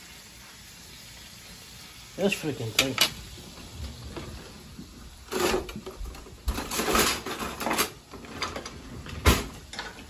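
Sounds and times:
utensils scraping and rattling: 5.2s - 8.8s.

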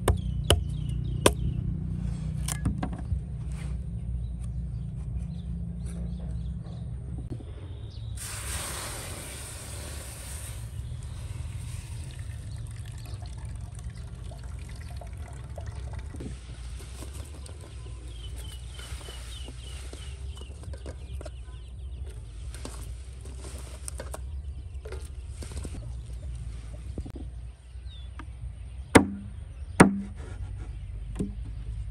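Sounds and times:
liquid pouring: 8.2s - 17.4s.

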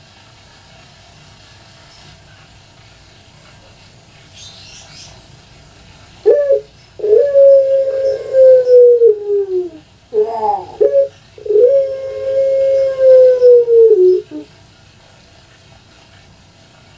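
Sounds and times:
dove cooing: 6.2s - 14.5s.

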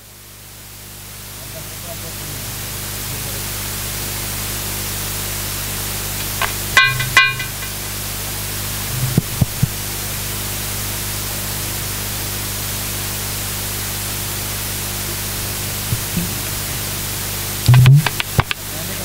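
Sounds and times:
sound system hiss and hum: 0.0s - 19.0s.

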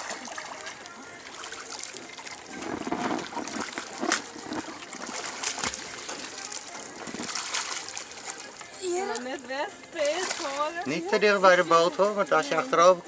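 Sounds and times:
water splashing and sloshing: 0.0s - 13.0s.

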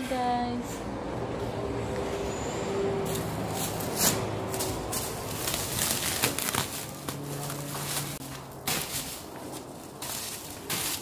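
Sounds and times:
plastic wrap crinkling: 4.5s - 11.0s.

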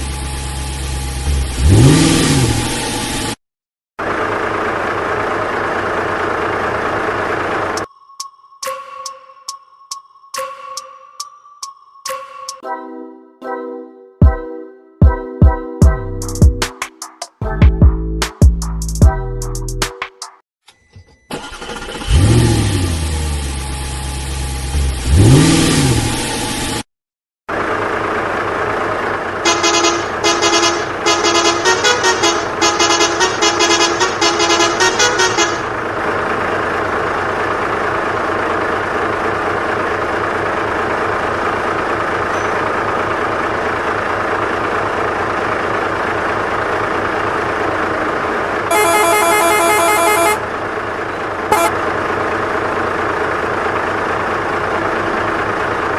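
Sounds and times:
truck engine revving: 0.0s - 3.4s, 4.0s - 7.9s, 21.4s - 26.9s, 27.5s - 55.9s
horn toots: 29.4s - 35.8s, 48.7s - 50.4s, 51.5s - 51.8s.

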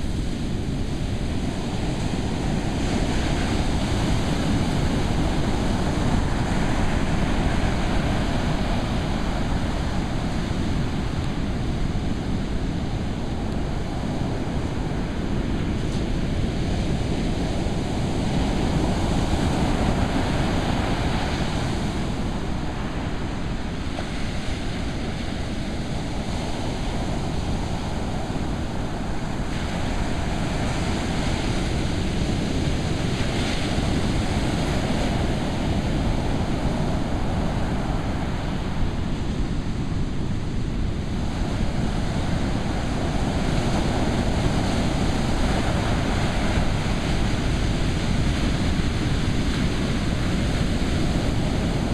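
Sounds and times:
ocean surf roaring: 0.0s - 51.9s
wind buffeting microphone: 0.0s - 51.9s.

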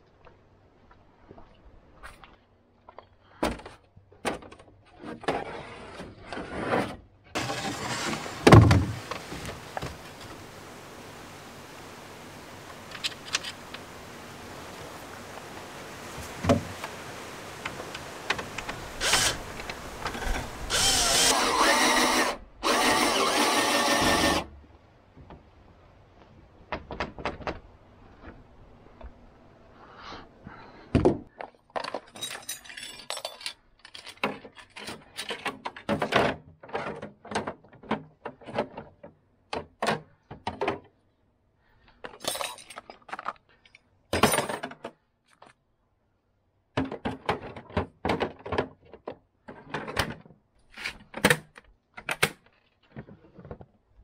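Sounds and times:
cordless drill driving screws: 19.0s - 24.5s.

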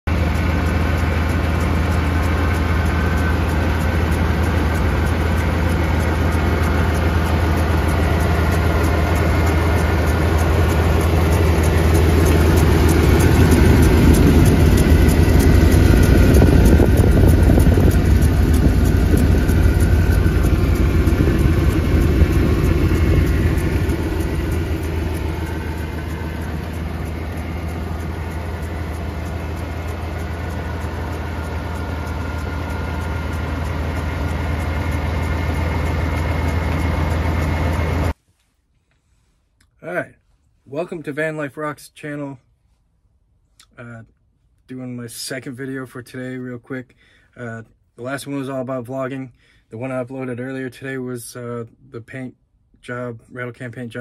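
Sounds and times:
van engine idling: 0.0s - 38.2s.

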